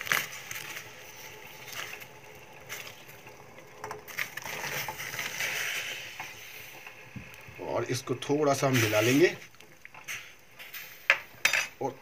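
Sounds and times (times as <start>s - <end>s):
water splashing and bubbling: 0.0s - 7.7s.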